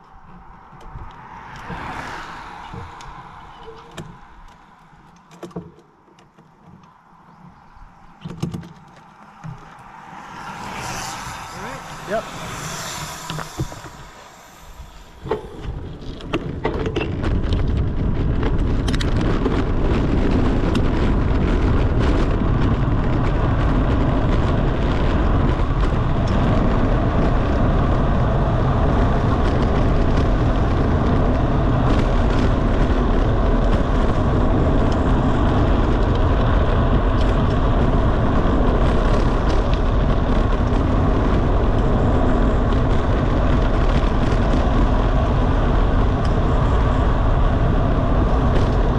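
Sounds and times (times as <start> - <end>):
wind rushing over microphone: 0.0 - 48.9
sharp clicks and knocks: 3.7 - 7.5, 8.2 - 9.8.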